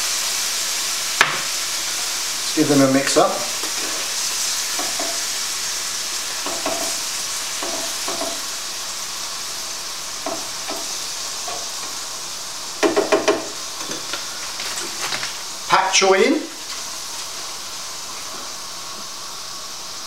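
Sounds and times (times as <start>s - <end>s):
food sizzling in a frying pan: 0.0s - 20.0s
utensil scraping and tapping pan: 7.6s - 8.4s.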